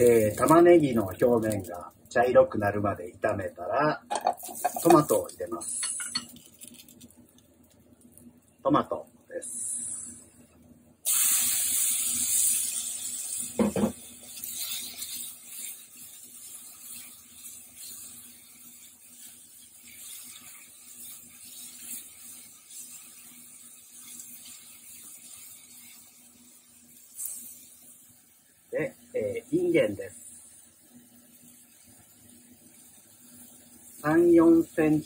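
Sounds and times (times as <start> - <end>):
food sizzling in frying pan: 0.0 - 35.0
spatula stirring in pan: 4.2 - 7.0, 11.1 - 28.3.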